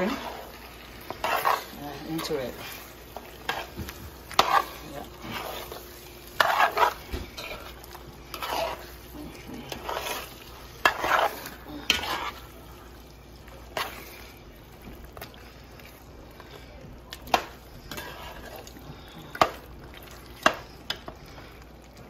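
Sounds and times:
spatula knocking and scraping pot: 0.0s - 12.5s, 17.2s - 18.7s, 20.4s - 21.2s
wet stirring and squelching: 0.0s - 22.0s.

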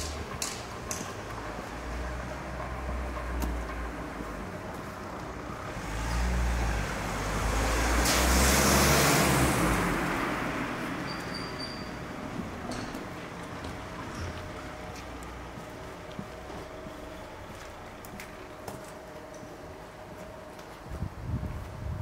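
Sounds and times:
low traffic rumble: 0.0s - 22.0s
car driving past: 5.6s - 12.6s.

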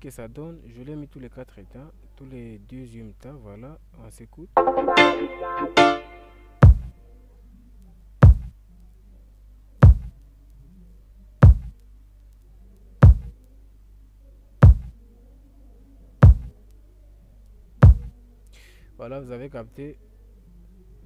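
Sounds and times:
kick drum thumps: 6.6s - 6.9s, 8.2s - 8.6s, 9.8s - 10.1s, 11.4s - 11.8s, 13.0s - 13.4s, 14.6s - 14.9s, 16.2s - 16.5s, 17.8s - 18.1s.

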